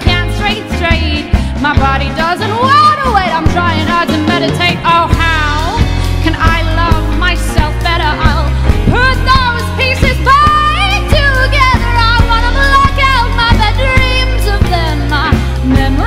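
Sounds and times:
live band playing: 0:00.0 - 0:16.0
woman singing: 0:00.0 - 0:16.0.

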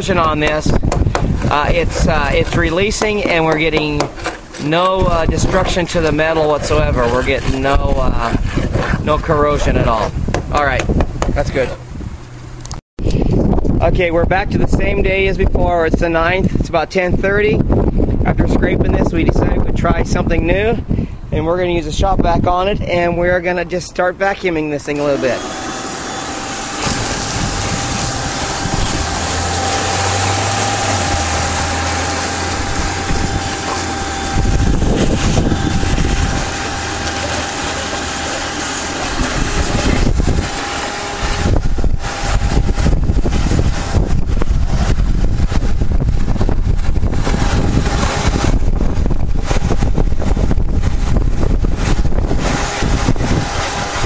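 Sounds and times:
shop vacuum whine: 0:24.9 - 0:45.5, 0:47.1 - 0:48.8, 0:51.8 - 0:54.0.

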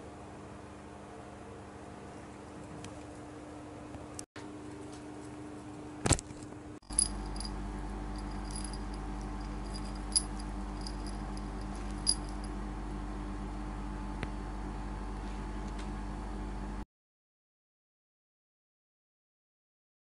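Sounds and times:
low steady hum: 0:02.3 - 0:16.8
kernels clicking against bowl: 0:08.2 - 0:12.5.

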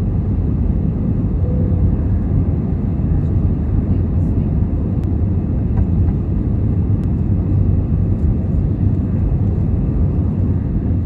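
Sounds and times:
jet engines rumbling in cabin: 0:00.0 - 0:11.0.

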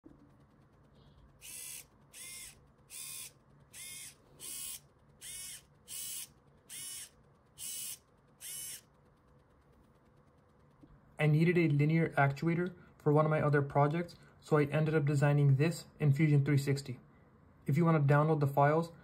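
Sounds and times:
servo motor whirring: 0:01.4 - 0:08.9.

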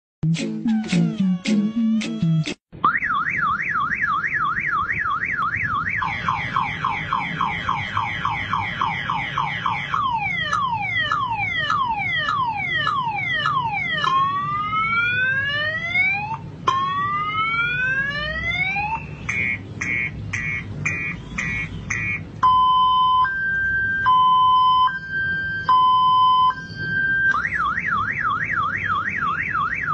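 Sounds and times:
motorcycle alarm siren: 0:00.8 - 0:29.9.

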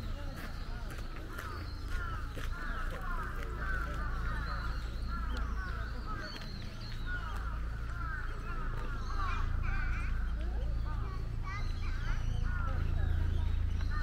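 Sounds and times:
many birds chattering: 0:00.0 - 0:14.0
low steady rumble: 0:01.6 - 0:14.0.

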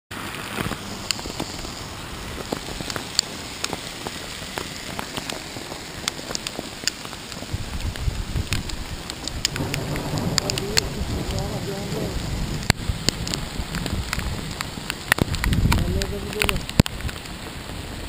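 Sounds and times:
hail pelting down: 0:00.2 - 0:18.0
hailstones ticking: 0:00.3 - 0:17.8
low rumble: 0:07.5 - 0:16.7.

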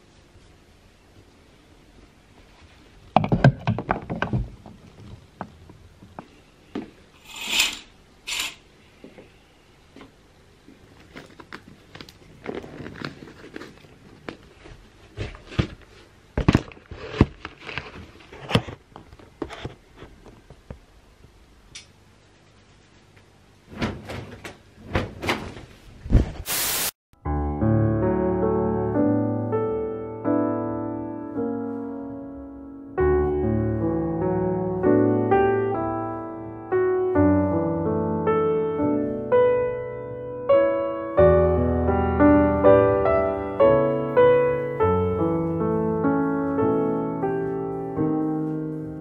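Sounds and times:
knocks and thumps: 0:03.1 - 0:06.2.

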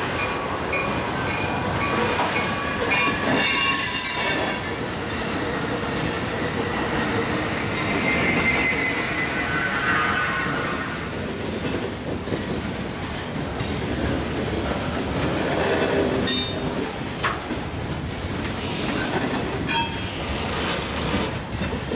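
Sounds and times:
train wheels rumbling on track: 0:00.0 - 0:21.9
wheel squeal: 0:07.5 - 0:11.0.

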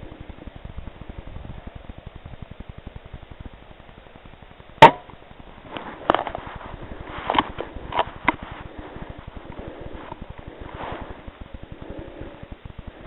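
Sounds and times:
rifle shot: 0:04.8 - 0:05.0.

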